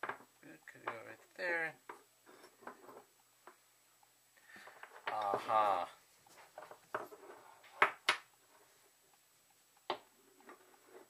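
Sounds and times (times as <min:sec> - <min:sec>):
objects knocking on wooden table: 0:00.0 - 0:01.0.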